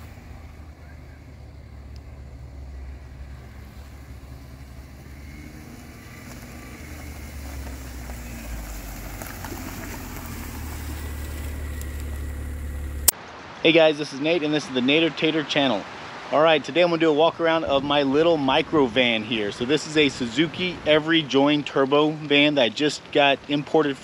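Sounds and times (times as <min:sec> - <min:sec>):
van engine running: 0:00.0 - 0:13.1.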